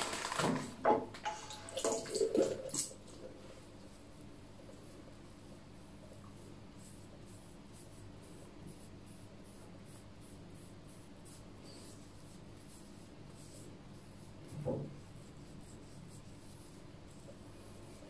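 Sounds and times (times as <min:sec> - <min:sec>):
cotton pad rubbing on skin: 0:06.8 - 0:18.0.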